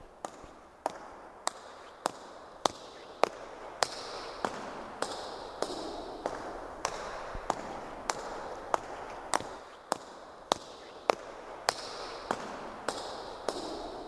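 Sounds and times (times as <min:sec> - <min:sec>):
steady noisy wash: 0:03.3 - 0:10.5.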